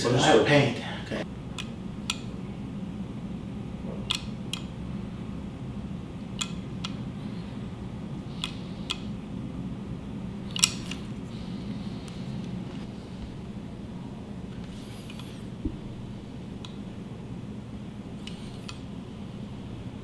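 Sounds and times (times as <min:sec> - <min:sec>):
low room hum: 0:00.0 - 0:20.0
sharp handling clicks: 0:04.0 - 0:04.7, 0:06.4 - 0:07.0, 0:08.4 - 0:09.1, 0:10.5 - 0:11.1.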